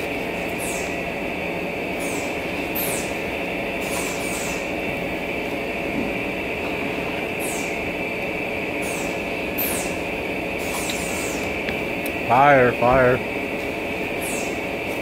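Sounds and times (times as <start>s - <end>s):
mechanical whirring with high whine: 0.0s - 15.0s.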